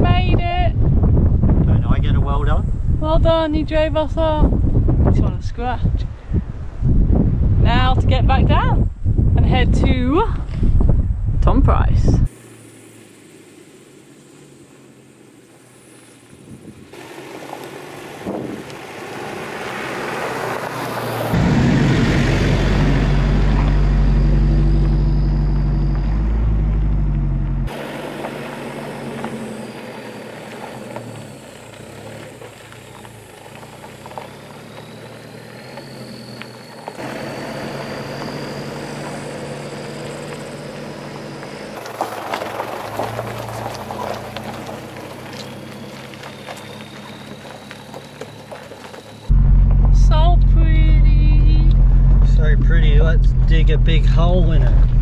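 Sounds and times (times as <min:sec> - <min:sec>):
vehicle engine drone: 0:00.0 - 0:55.0
tyres on gravel: 0:12.3 - 0:55.0.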